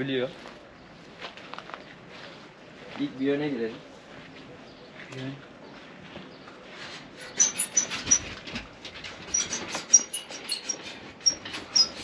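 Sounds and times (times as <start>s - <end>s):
cage gate rattling open: 7.2s - 12.0s.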